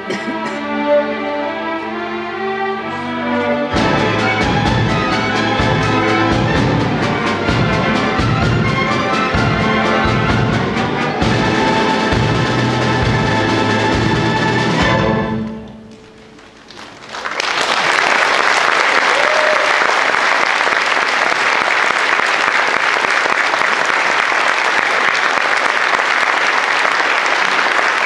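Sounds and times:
string orchestra final chord: 2.8s - 16.0s
audience applause: 15.9s - 28.0s.

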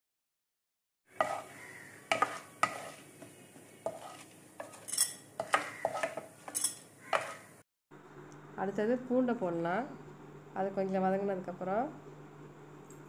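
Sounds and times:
faint sizzle of frying: 1.1s - 7.6s
wooden spoon knocking pan: 5.4s - 7.4s.

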